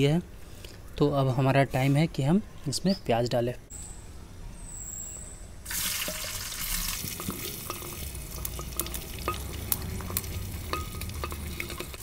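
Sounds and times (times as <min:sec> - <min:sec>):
oil crackling: 0:05.7 - 0:12.0
onions sizzling in hot oil: 0:05.7 - 0:12.0.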